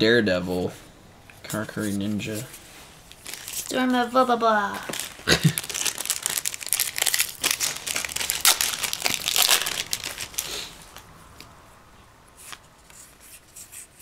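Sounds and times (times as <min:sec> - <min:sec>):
foil wrapper crinkling: 0:03.0 - 0:04.0, 0:04.7 - 0:11.0.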